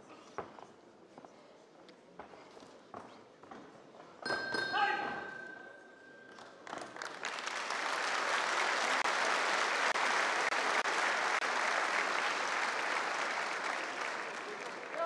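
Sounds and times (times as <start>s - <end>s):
crowd applauding: 6.6s - 15.0s.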